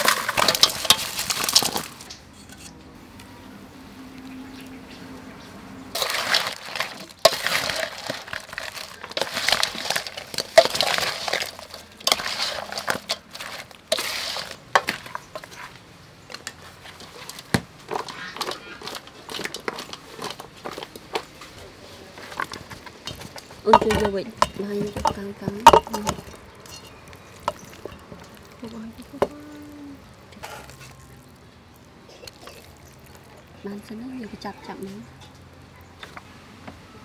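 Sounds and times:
chicken wings clattering into metal bowl: 0.0 - 2.2, 5.9 - 21.4, 22.1 - 31.2
crunchy rustling and scraping of wings: 0.0 - 2.7, 5.9 - 33.9.

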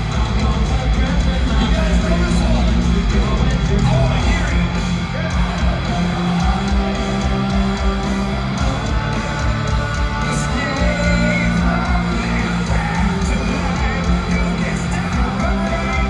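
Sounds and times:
live heavy metal band: 0.0 - 16.0.

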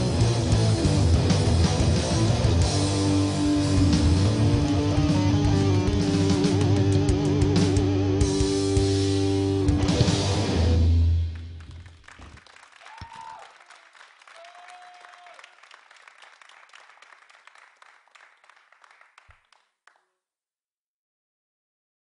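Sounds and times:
audience applauding: 11.2 - 20.0.

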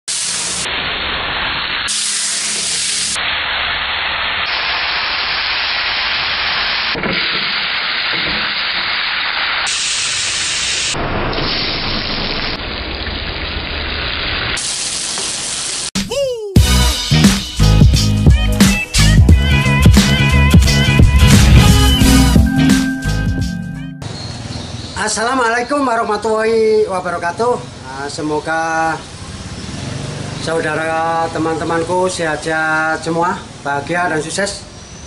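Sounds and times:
oil sizzling in a wok: 0.1 - 16.0, 29.0 - 30.3.

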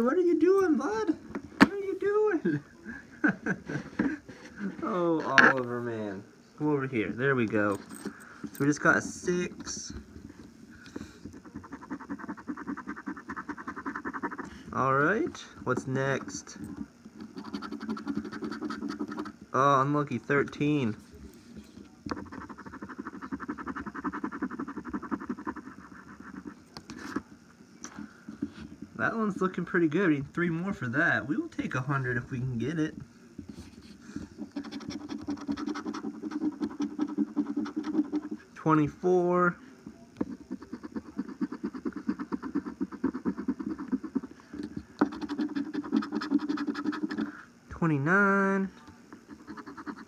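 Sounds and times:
coin scratching lottery ticket: 7.6 - 10.3, 11.3 - 19.4, 22.1 - 27.3, 33.5 - 38.5, 40.2 - 47.4, 49.2 - 50.0
coin scraping a lottery ticket: 17.2 - 19.4, 34.4 - 38.5, 45.0 - 47.3, 49.3 - 50.0.

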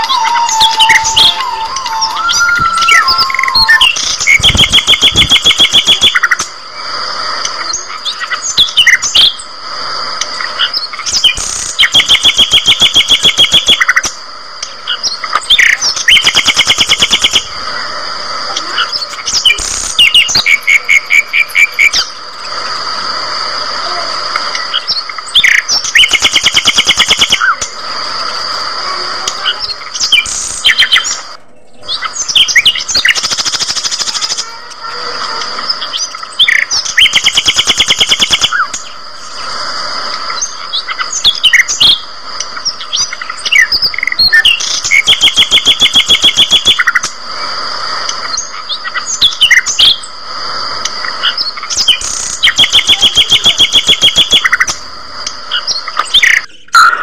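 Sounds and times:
steady high ringing tone: 0.0 - 5.0
rapid bird trills: 0.0 - 6.5, 10.2 - 17.7, 18.5 - 22.6, 24.5 - 27.7, 28.7 - 47.2, 47.9 - 50.2, 50.8 - 57.0
budgerigars chirping and chattering: 29.3 - 34.4, 40.4 - 47.1, 51.2 - 54.8.

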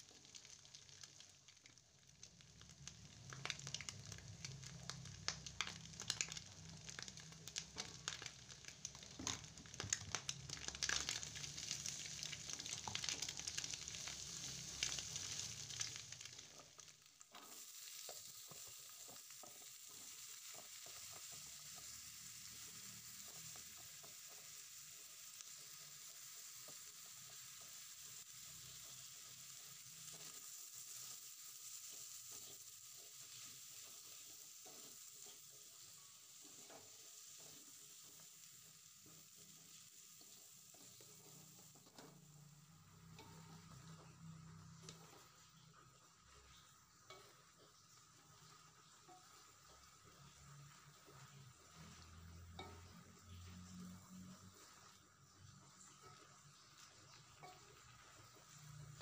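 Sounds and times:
food sizzling in hot oil: 0.0 - 59.0
wooden spatula scraping a wok: 39.0 - 59.0.

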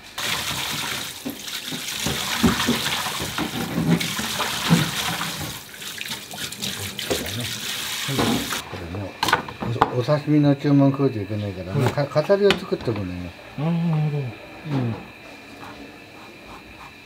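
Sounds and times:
hands rinsing food in water: 0.2 - 8.6.

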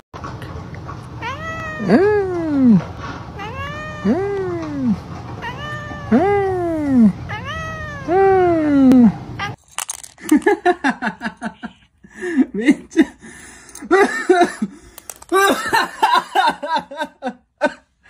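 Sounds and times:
cat meowing: 1.2 - 2.8, 3.4 - 9.6.

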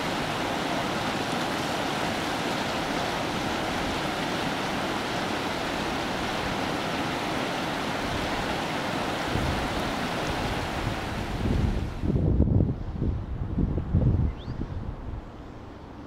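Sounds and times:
stream rushing over rocks: 0.0 - 12.2.

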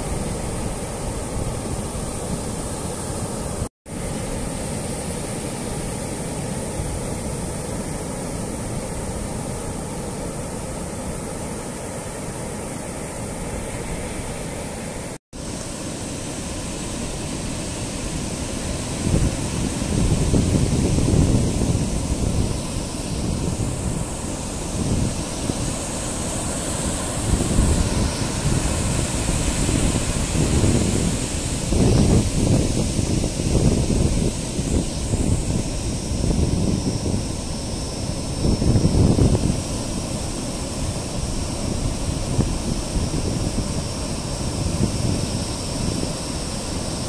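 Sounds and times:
surf washing on sandy beach: 0.0 - 47.0
wind buffeting microphone: 16.7 - 47.0.

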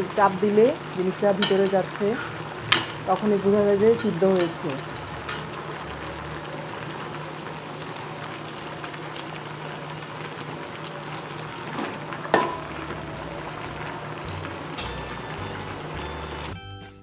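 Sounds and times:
pot hissing and crackling: 0.0 - 16.6
ladle clinking against pot: 12.3 - 12.6.

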